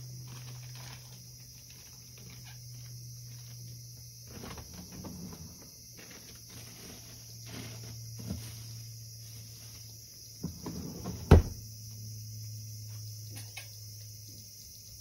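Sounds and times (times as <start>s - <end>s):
cicadas singing: 0.0s - 15.0s.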